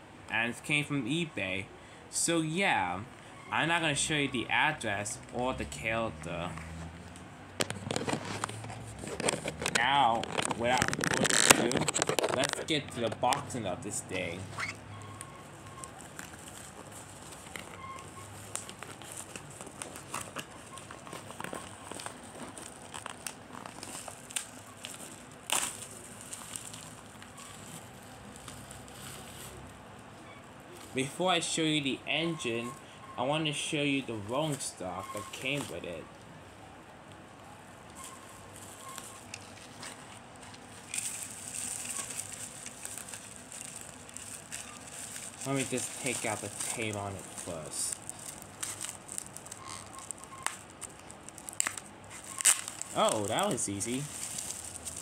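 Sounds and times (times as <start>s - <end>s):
packaging crinkling and rustling: 7.1s - 29.8s, 38.0s - 55.0s.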